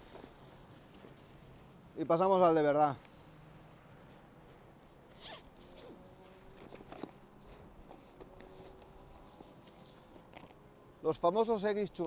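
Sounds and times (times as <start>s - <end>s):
soft clicks and rustles: 0.0s - 1.8s, 3.0s - 10.6s
backpack zipper opening: 5.1s - 9.4s.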